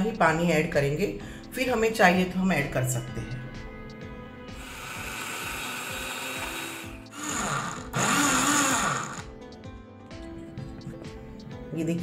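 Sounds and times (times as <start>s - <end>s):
blender motor grinding: 4.6s - 9.4s.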